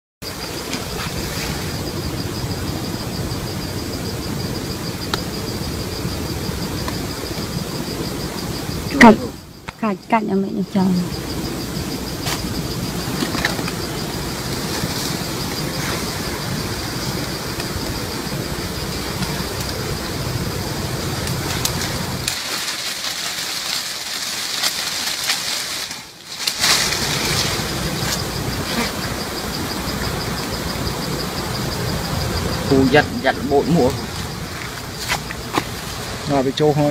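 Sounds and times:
leaves rustling: 0.2s - 3.1s, 10.8s - 36.9s
high pulsing insect trill: 0.2s - 36.9s
honeybee swarm buzzing: 10.7s - 36.3s.

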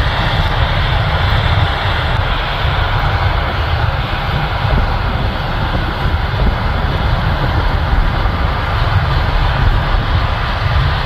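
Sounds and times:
tractor engine low rumble: 0.0s - 11.0s.

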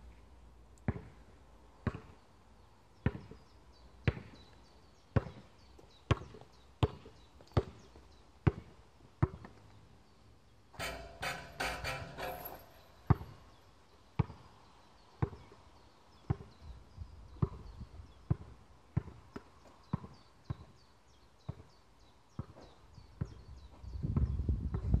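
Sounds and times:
basketball bouncing: 10.8s - 13.4s.

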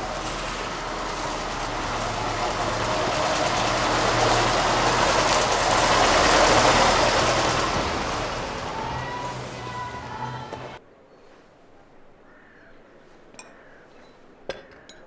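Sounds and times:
car driving past: 0.0s - 10.8s.

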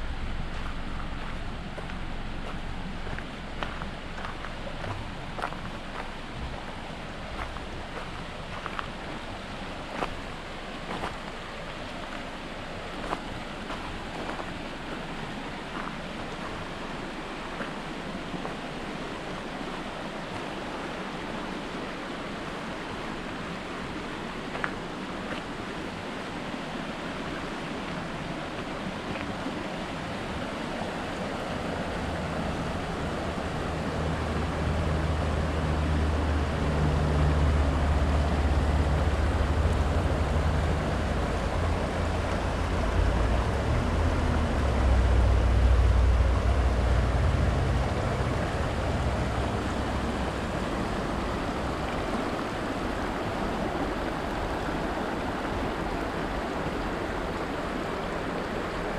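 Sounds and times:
low rumble: 0.0s - 8.8s, 31.8s - 52.5s
river rushing over rocks: 0.0s - 58.9s.

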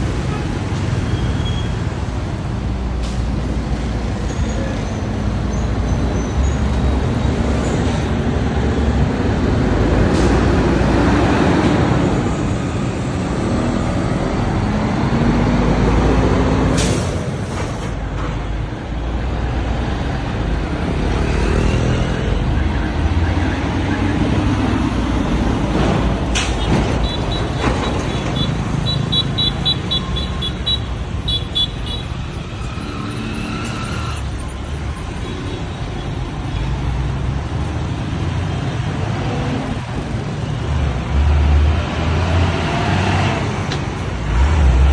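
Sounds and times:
street traffic: 0.0s - 44.9s
truck engine rumble: 22.4s - 35.3s.

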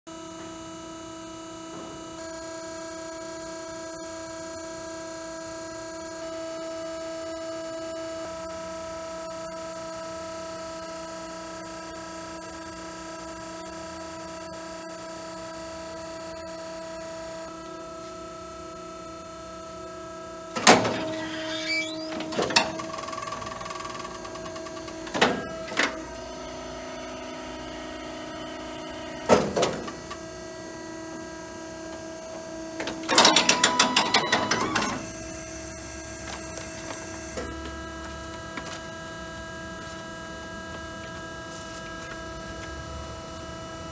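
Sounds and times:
machine hum: 18.6s - 43.9s.

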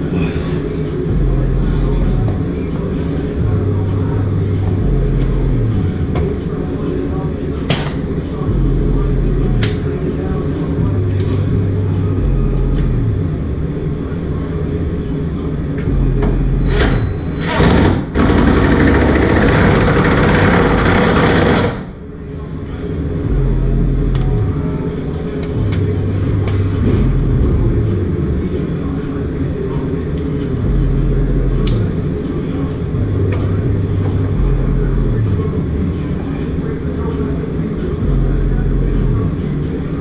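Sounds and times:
deep bass line: 0.9s - 6.4s, 8.4s - 10.0s, 10.6s - 13.8s, 15.8s - 22.0s, 23.0s - 28.6s, 29.6s - 36.2s, 38.0s - 39.6s
impact wrench hammering: 17.4s - 21.9s.

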